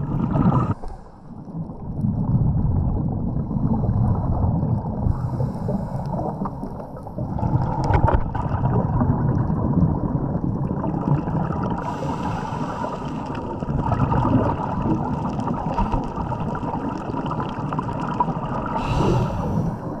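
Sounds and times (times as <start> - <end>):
diver's exhaled bubbles gurgling: 0.0 - 20.0
muffled underwater rumble: 0.0 - 20.0.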